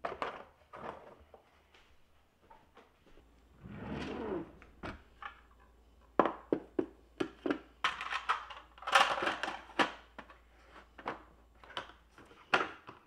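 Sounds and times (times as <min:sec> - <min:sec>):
drawer sliding open: 0:03.6 - 0:05.2
plastic clicks and clatters: 0:07.2 - 0:10.4, 0:11.0 - 0:13.0.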